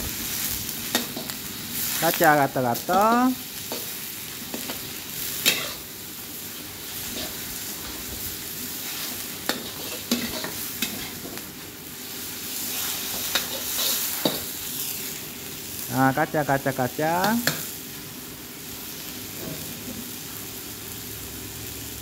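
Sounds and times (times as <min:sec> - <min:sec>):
meat sizzling in hot oil: 0:00.0 - 0:22.0.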